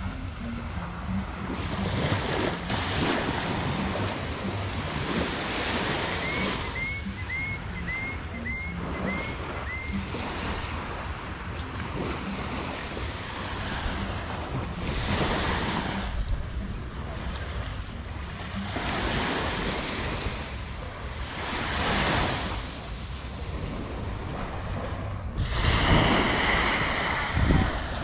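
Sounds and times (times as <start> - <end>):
wind buffeting microphone: 9.0 - 28.0
small waves washing onto beach: 9.1 - 28.0.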